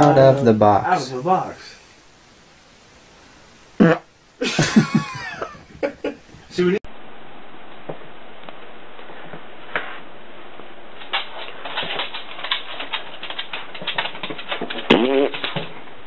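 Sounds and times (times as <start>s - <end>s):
recording noise hiss: 0.0s - 16.0s
dog claws clicking on wooden floor: 11.2s - 15.7s.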